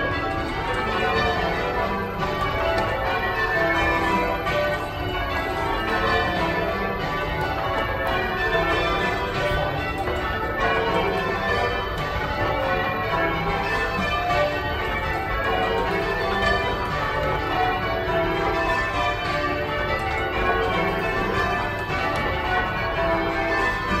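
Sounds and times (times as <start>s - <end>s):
church bells ringing: 0.0s - 24.0s.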